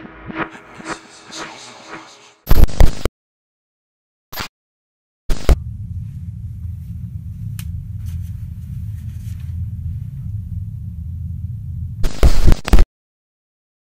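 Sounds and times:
low rumbling drone: 0:00.0 - 0:02.4, 0:05.6 - 0:12.0
harsh glitch noise bursts: 0:00.0 - 0:03.1, 0:12.0 - 0:12.8.

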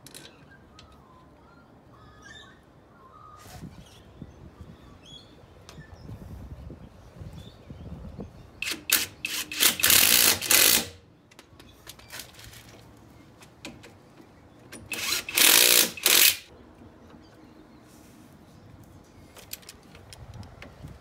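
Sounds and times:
impact driver running: 0:08.6 - 0:10.9, 0:14.9 - 0:16.5.

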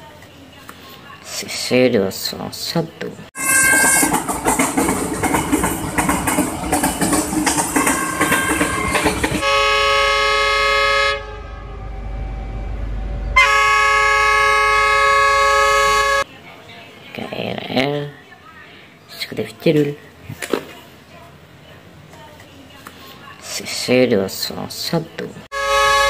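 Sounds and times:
locomotive horn blasts: 0:03.4 - 0:04.2, 0:07.8 - 0:16.3, 0:25.5 - 0:26.0
train wheels clattering on rails: 0:03.6 - 0:09.4
low engine rumble: 0:11.2 - 0:15.2.

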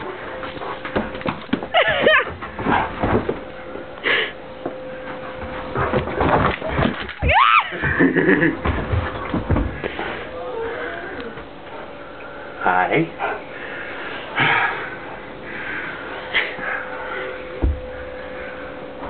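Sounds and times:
scuffling and knocks: 0:04.6 - 0:08.0.

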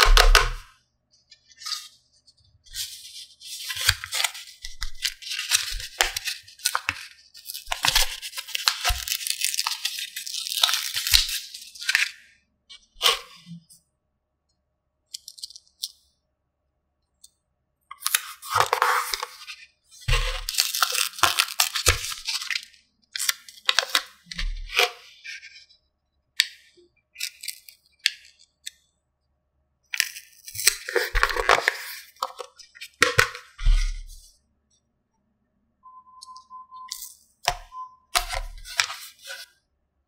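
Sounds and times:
plastic packaging rustling: 0:02.7 - 0:12.2, 0:18.0 - 0:24.9, 0:30.0 - 0:34.2.

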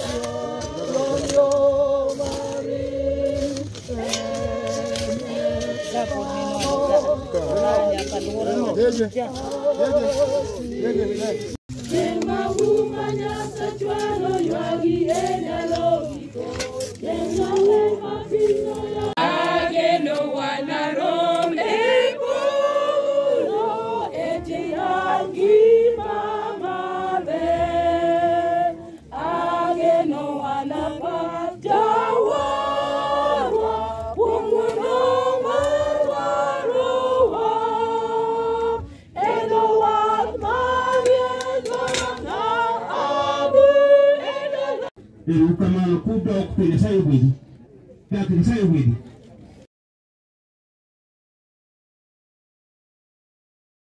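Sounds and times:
choir singing: 0:00.0 - 0:45.0.

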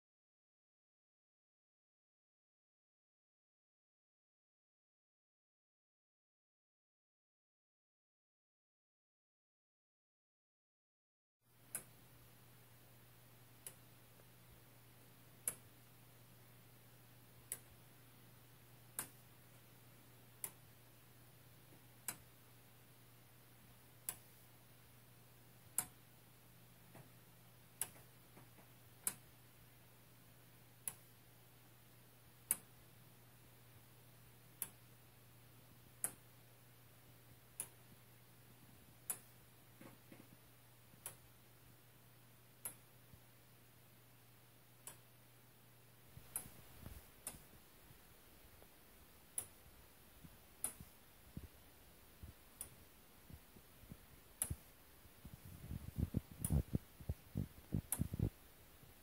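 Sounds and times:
clock ticking slowly: 0:11.6 - 0:59.0.

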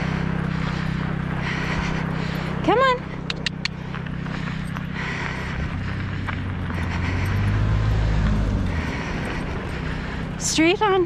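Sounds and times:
car driving past on slushy road: 0:04.0 - 0:10.2.

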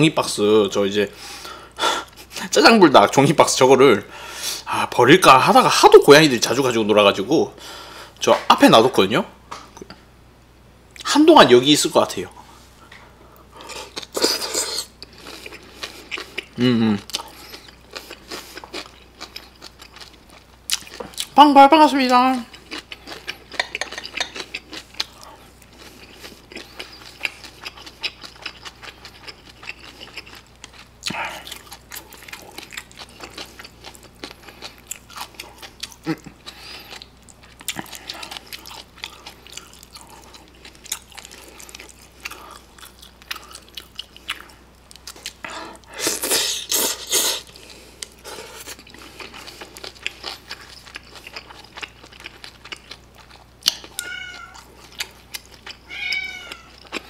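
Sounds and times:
person chewing with wet mouth smacks: 0:13.6 - 0:21.3, 0:22.5 - 0:55.8.

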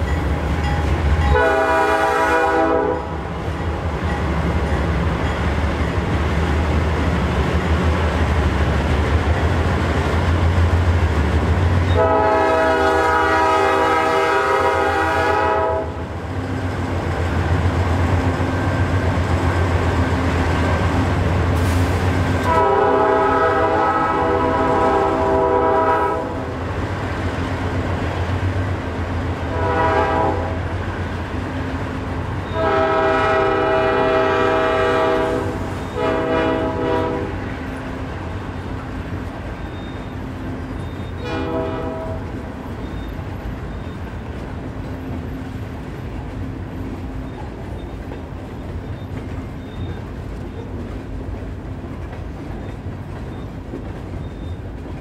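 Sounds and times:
locomotive air horn blasts: 0:01.2 - 0:03.3, 0:11.9 - 0:16.0, 0:21.6 - 0:26.6, 0:29.5 - 0:30.7, 0:32.4 - 0:37.5, 0:41.1 - 0:42.5.

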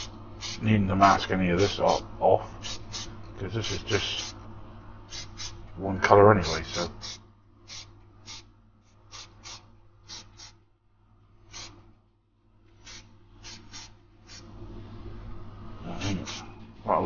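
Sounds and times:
spray can hissing bursts: 0:00.0 - 0:00.6, 0:02.6 - 0:03.1, 0:05.1 - 0:05.6, 0:06.8 - 0:08.5, 0:09.1 - 0:10.6, 0:11.5 - 0:11.8, 0:12.8 - 0:14.4, 0:16.2 - 0:16.5.

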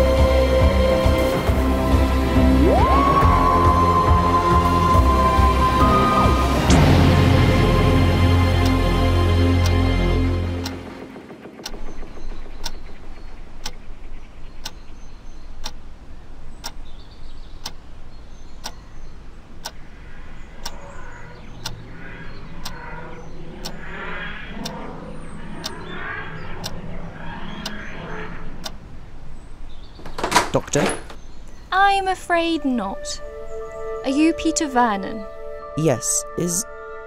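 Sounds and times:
low hum: 0:00.0 - 0:17.6, 0:18.9 - 0:30.2
clock ticking: 0:08.5 - 0:08.9, 0:10.6 - 0:10.8, 0:11.6 - 0:12.0, 0:12.6 - 0:12.9, 0:13.6 - 0:13.8, 0:14.6 - 0:14.8, 0:15.6 - 0:15.9, 0:17.6 - 0:17.9, 0:18.6 - 0:18.8, 0:23.6 - 0:23.8
wavering sci-fi materialisation sound: 0:19.9 - 0:29.0.

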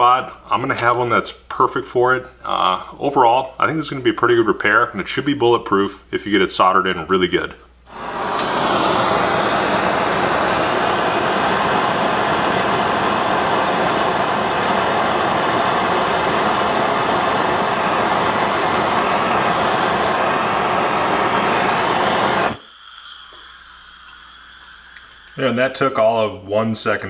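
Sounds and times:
butane torch hissing: 0:07.9 - 0:26.1.

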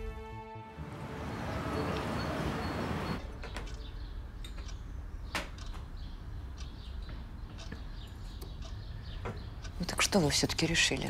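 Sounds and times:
background music: 0:00.0 - 0:05.0
light clicks and knocks: 0:03.3 - 0:06.0, 0:06.6 - 0:11.0.

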